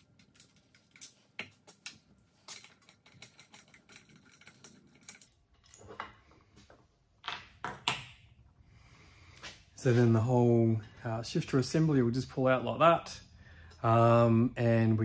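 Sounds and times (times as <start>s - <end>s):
small metal parts clicking: 0.0s - 6.0s.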